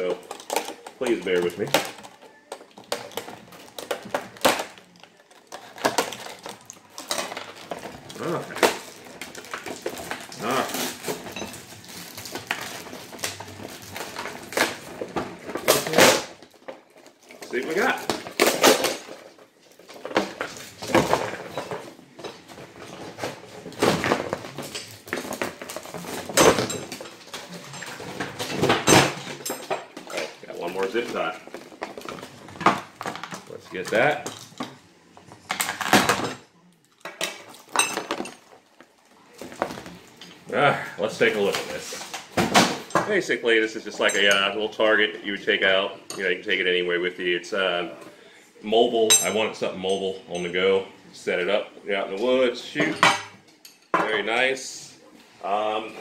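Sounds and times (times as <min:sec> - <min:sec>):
plastic packaging clicks and crackles: 0:00.0 - 0:21.2.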